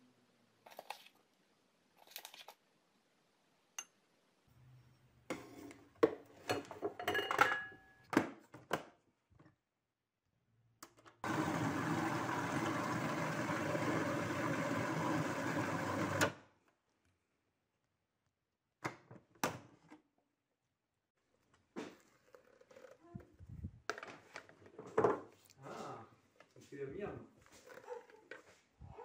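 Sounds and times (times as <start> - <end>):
clinks and knocks in plastic bowl: 6.0 - 8.0
food processor blending: 11.2 - 16.4.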